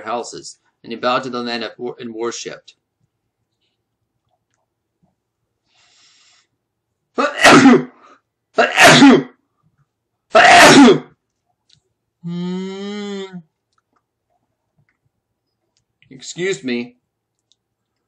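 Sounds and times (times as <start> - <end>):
man sneezing loudly: 7.2 - 9.4, 10.3 - 11.2.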